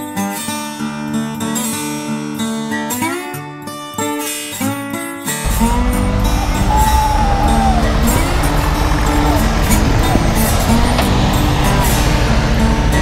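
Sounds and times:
strummed acoustic guitar music: 0.0 - 13.0
tractor engine driving past: 5.5 - 13.0.

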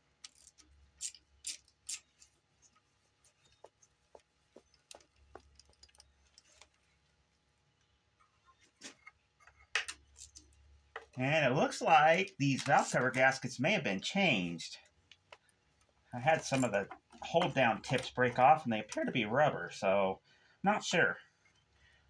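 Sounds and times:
socket ratchet clicking: 0.2 - 2.1.

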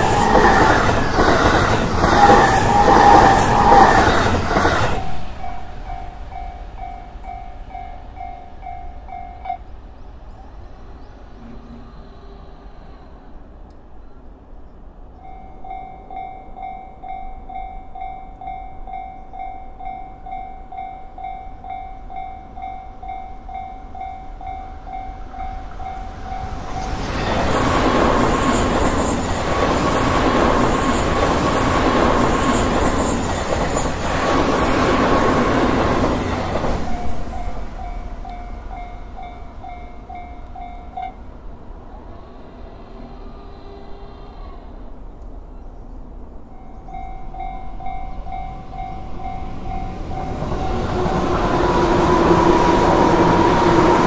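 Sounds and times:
train passing at speed: 0.0 - 54.0
railroad crossing bell ringing: 5.4 - 9.8, 15.2 - 29.9, 32.5 - 41.4, 46.4 - 51.4.

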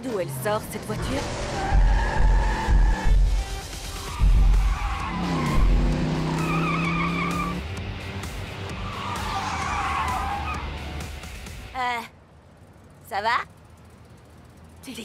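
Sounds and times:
tyres squealing in a skid: 1.0 - 7.6, 8.7 - 10.8
music with deep bass thuds: 1.7 - 9.0.

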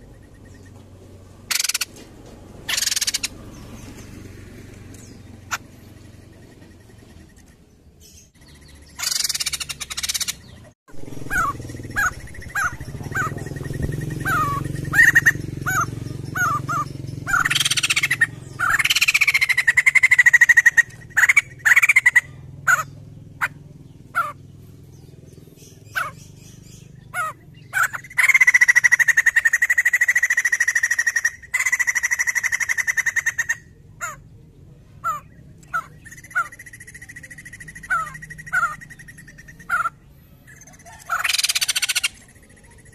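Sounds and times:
bird chirping: 0.0 - 2.0, 2.6 - 42.9
bird long pulsed calls: 1.5 - 1.9, 8.4 - 24.5, 25.8 - 33.7.

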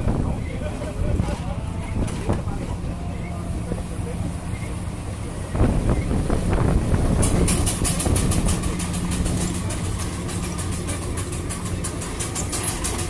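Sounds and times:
steam engine exhaust chuffing: 3.4 - 13.0.

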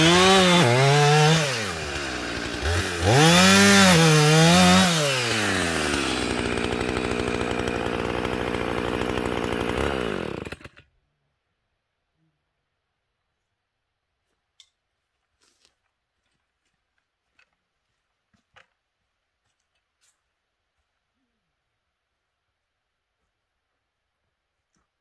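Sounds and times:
chainsaw revving: 0.0 - 10.9.

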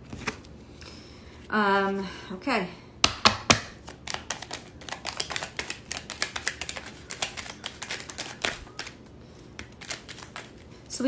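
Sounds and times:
cards being shuffled: 0.1 - 0.5, 3.3 - 10.7.

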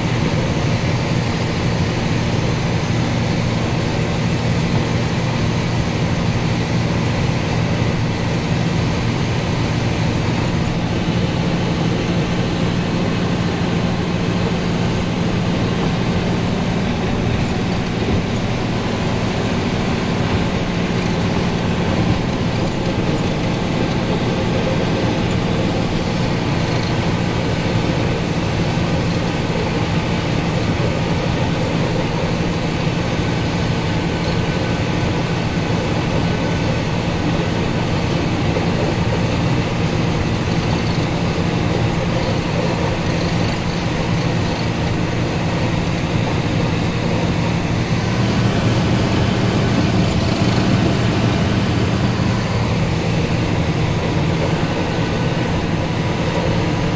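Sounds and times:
diesel engine drone: 0.0 - 56.9
plough pushing snow: 0.0 - 56.9.

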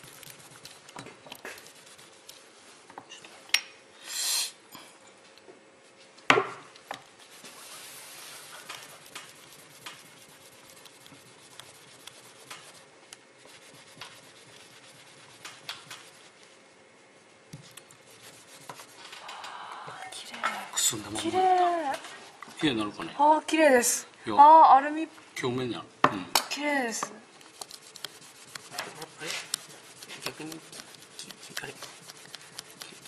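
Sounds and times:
cloth rubbing on metal: 1.5 - 2.8, 7.1 - 19.2, 27.4 - 33.0
short hiss: 4.0 - 4.6.

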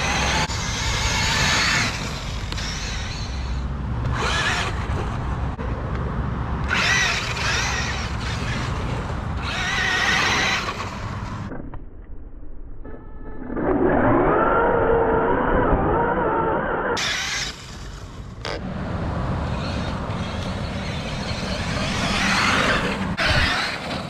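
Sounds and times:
toy truck electric motor whining: 0.0 - 5.1, 6.7 - 11.3, 13.7 - 18.6, 19.5 - 24.0.

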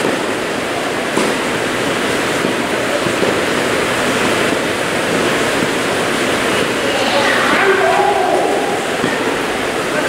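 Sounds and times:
loud rushing noise: 5.4 - 10.0.

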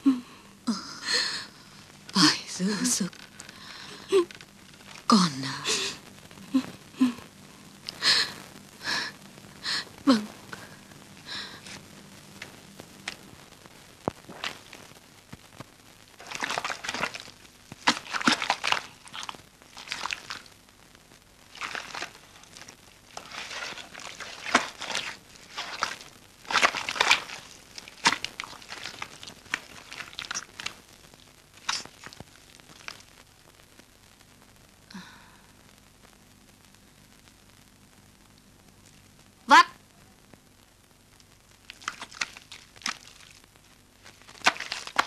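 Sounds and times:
rustling and crunching: 1.9 - 5.2, 11.6 - 33.3, 41.2 - 45.0.

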